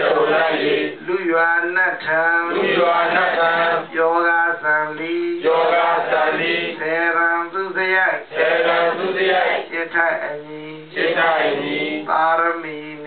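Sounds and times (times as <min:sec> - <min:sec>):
man chanting into a microphone: 0:00.9 - 0:05.5, 0:09.6 - 0:11.0, 0:11.9 - 0:13.0.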